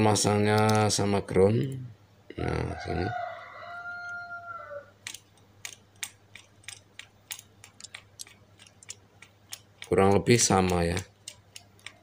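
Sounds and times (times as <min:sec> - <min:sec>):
bicycle dynamo clicking: 0:05.1 - 0:12.0.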